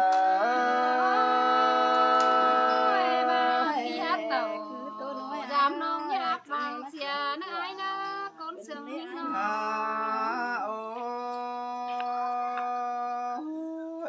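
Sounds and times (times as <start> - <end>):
woman singing folk song: 2.9 - 9.5.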